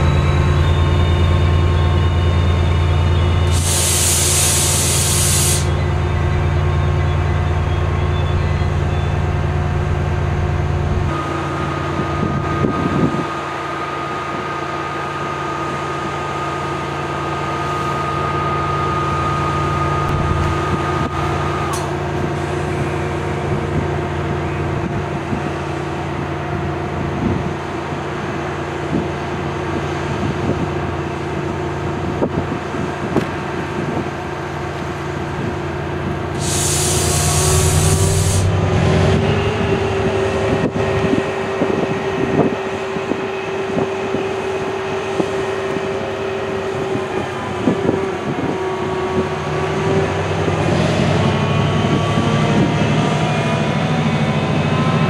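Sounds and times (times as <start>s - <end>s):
locomotive engine running: 0.0s - 55.0s
air hissing: 3.5s - 5.8s, 36.4s - 38.6s.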